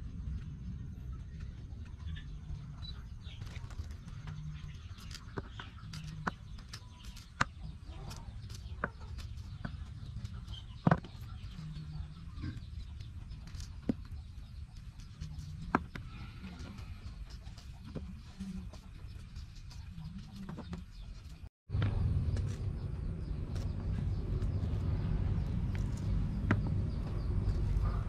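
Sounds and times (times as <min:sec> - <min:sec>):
chickens clucking: 0:01.2 - 0:21.4.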